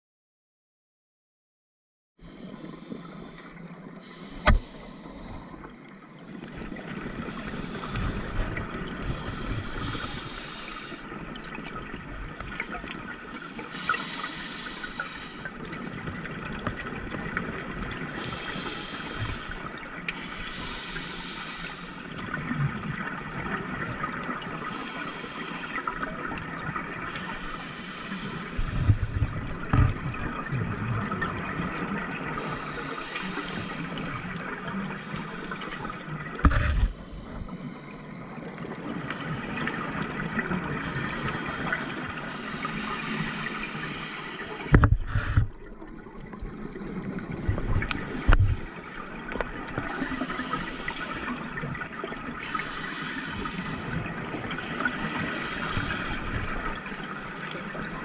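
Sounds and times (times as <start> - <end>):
steady underwater hiss: 2.2 - 58.0
exhaled bubbles hissing: 2.3 - 58.0
diver breathing through regulator: 2.4 - 5.8, 7.3 - 11.1, 13.6 - 15.6, 18.2 - 22.1, 24.6 - 26.0, 27.1 - 29.9, 32.4 - 38.2, 40.8 - 45.5, 49.8 - 51.6, 52.4 - 56.6.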